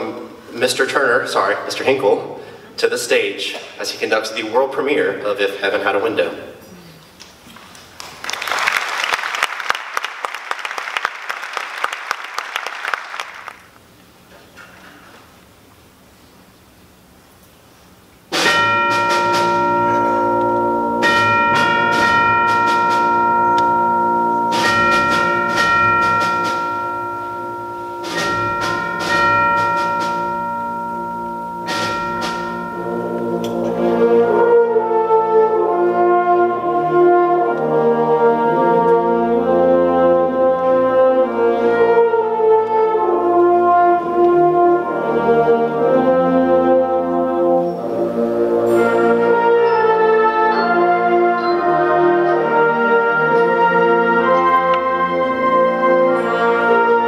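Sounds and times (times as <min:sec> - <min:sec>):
ringing struck percussion: 0:18.3 - 0:34.0
brass and winds sustained chords: 0:18.3 - 0:57.0.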